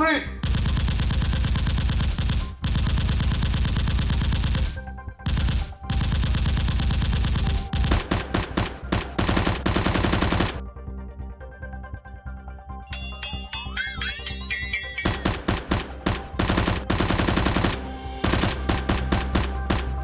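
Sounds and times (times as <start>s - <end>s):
background music: 0.0s - 20.0s
automatic gunfire: 0.4s - 10.6s, 15.1s - 20.0s.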